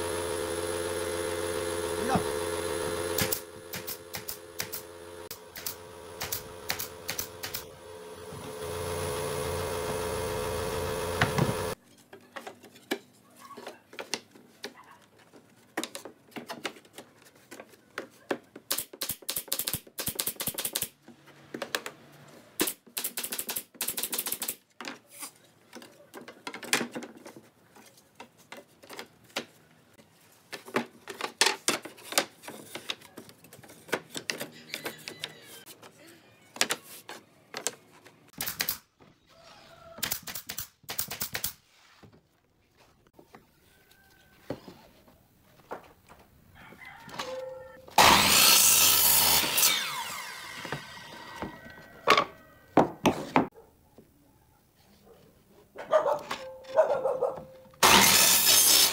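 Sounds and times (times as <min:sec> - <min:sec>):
nail gun firing: 0:02.0 - 0:07.7, 0:18.7 - 0:21.0, 0:22.6 - 0:24.6, 0:38.4 - 0:38.9, 0:40.0 - 0:41.6, 0:48.0 - 0:50.1, 0:57.8 - 0:58.9
wooden boards knocking: 0:52.1 - 0:53.5.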